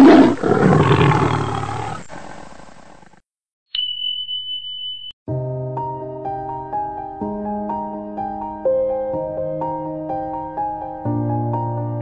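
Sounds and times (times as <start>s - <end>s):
big cat roar: 0.0s - 3.2s.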